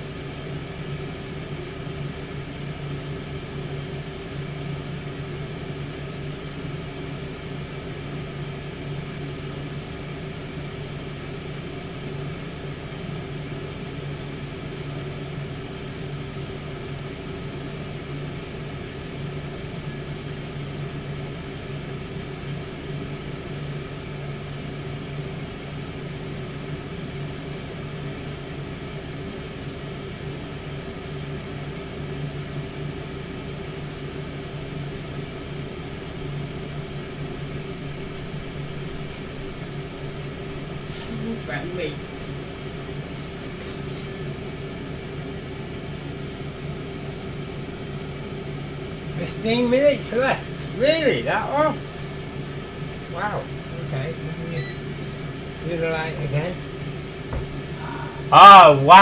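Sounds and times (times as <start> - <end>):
air fryer fan humming: 0.0 - 59.0.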